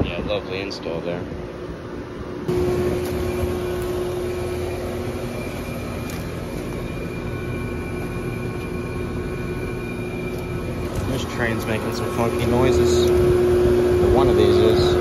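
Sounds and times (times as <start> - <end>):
heat pump compressor hum: 0.0 - 15.0
heat pump funky noises: 0.0 - 15.0.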